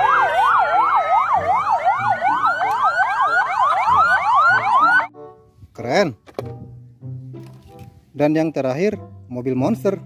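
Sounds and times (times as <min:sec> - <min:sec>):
ambulance sirens yelping: 0:00.0 - 0:05.1
siren wail: 0:00.0 - 0:05.1.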